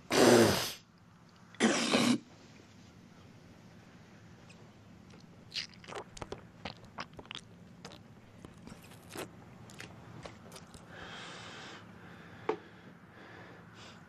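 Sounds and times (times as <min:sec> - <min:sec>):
man chewing food: 0:05.0 - 0:10.9.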